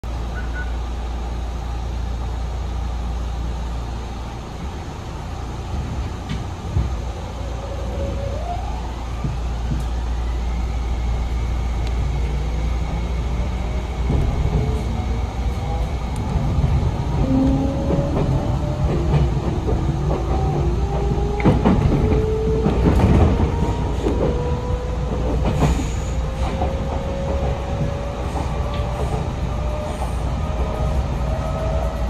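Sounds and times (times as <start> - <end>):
train low hum: 0.0 - 32.0.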